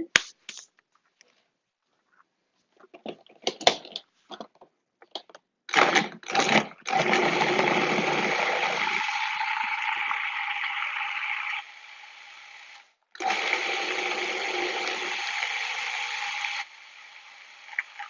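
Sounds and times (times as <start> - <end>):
food processor motor running: 5.7 - 17.8.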